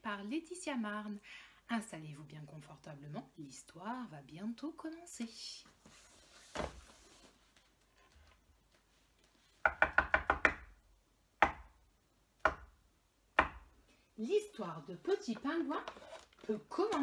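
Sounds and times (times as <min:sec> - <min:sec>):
knocking on hard surface: 0:09.6 - 0:10.7.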